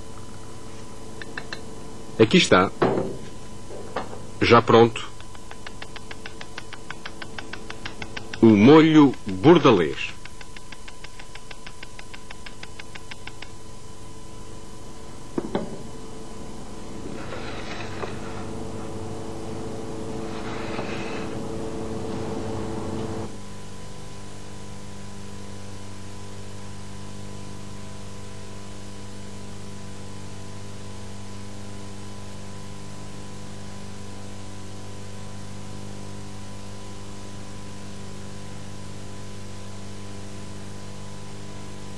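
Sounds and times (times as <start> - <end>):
constant hiss: 0.0 - 23.4
electrical hum: 0.0 - 41.9.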